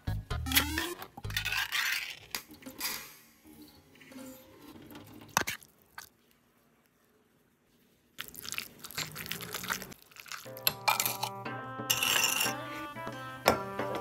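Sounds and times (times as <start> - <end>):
background music held notes: 10.5 - 14.0.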